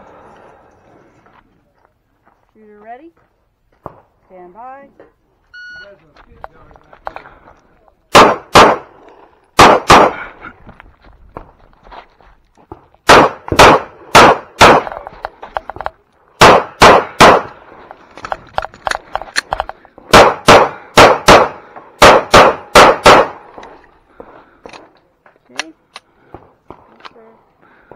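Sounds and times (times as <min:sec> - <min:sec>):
handgun shots: 0:08.1 - 0:08.9, 0:09.6 - 0:10.2, 0:13.1 - 0:15.0, 0:16.4 - 0:17.5, 0:20.1 - 0:23.4.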